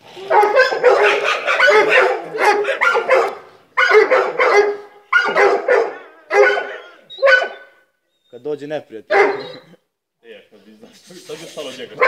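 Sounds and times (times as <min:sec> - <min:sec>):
dogs barking: 0:00.2 - 0:07.8, 0:09.1 - 0:09.8.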